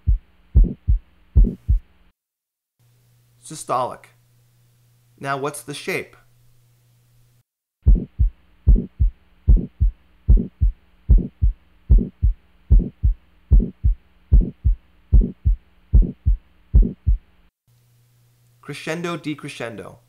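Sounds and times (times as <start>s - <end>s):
harsh heart murmur: 0.0s - 1.9s, 7.8s - 17.3s
heartbeat: 0.0s - 1.9s, 7.8s - 17.3s.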